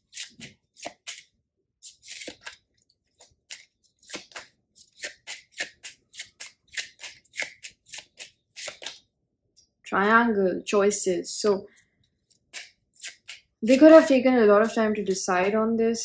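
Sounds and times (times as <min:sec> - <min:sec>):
cards being shuffled: 0:00.1 - 0:09.1.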